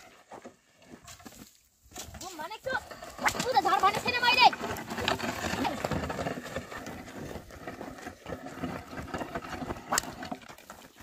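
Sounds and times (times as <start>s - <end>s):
hooves and footsteps: 0.0s - 11.0s
plough scraping through dry soil: 0.0s - 11.0s.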